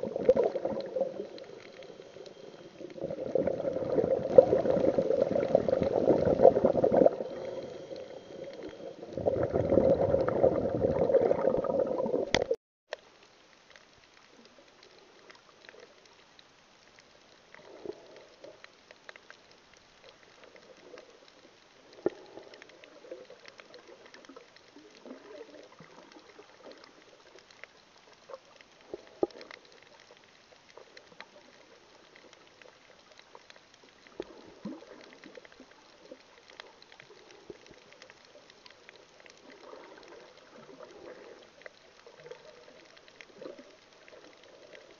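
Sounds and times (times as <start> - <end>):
underwater sloshing and bubbling: 0.0 - 12.6, 13.2 - 44.9
faint underwater crackle: 0.0 - 44.9.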